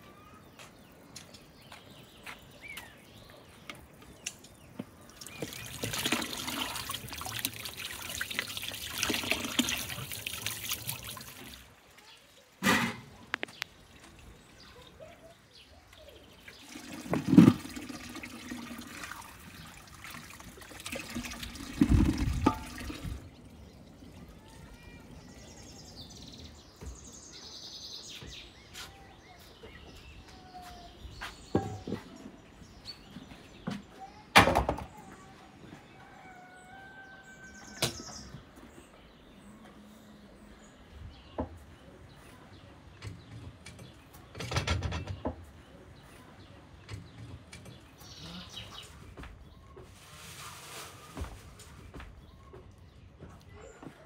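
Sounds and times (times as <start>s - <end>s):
birds chirping: 0.0s - 50.0s, 51.6s - 54.0s
water running into metal basin: 5.0s - 15.0s, 16.2s - 25.5s.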